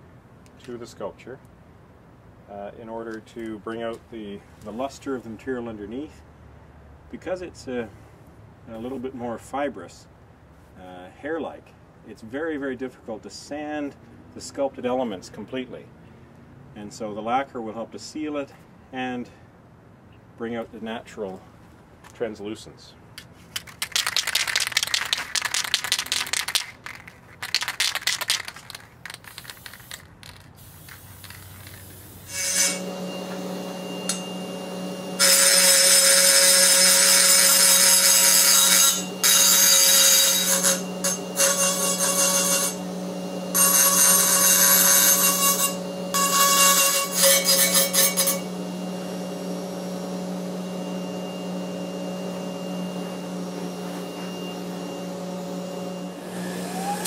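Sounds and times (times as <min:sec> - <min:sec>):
rotary tool grinding metal: 0:29.4 - 0:48.6
aerosol spray hissing: 0:30.6 - 0:32.3
electric motor hum: 0:31.1 - 0:57.0.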